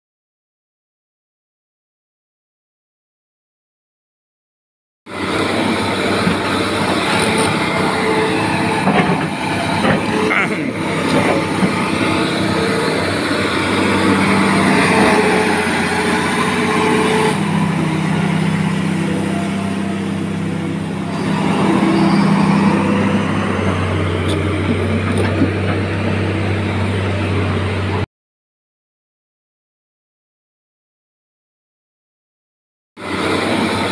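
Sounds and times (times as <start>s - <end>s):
excavator diesel engine running: 5.1s - 28.1s, 33.0s - 33.9s.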